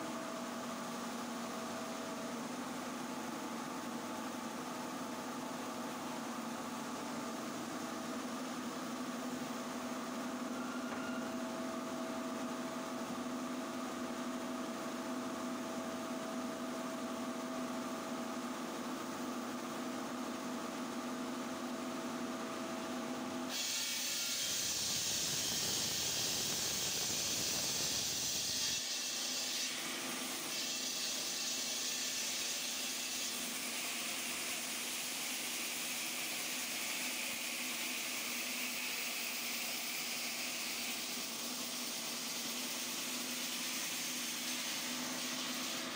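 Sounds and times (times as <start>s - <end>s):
saw blade hissing through stone: 23.5s - 34.0s.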